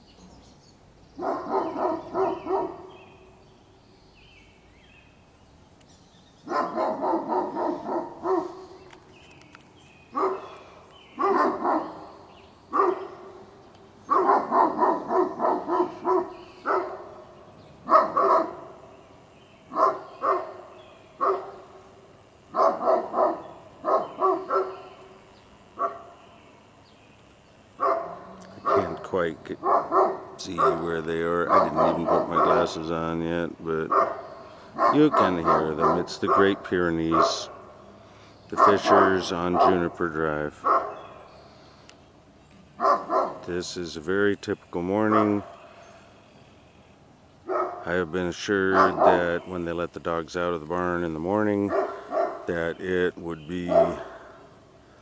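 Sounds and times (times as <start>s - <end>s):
dogs barking: 1.2s - 3.2s, 6.4s - 8.9s, 10.1s - 18.9s, 19.6s - 25.1s, 25.7s - 26.2s, 27.8s - 37.8s, 38.5s - 41.3s, 42.8s - 43.6s, 44.9s - 45.6s, 47.4s - 49.6s, 51.4s - 52.6s, 53.6s - 54.6s.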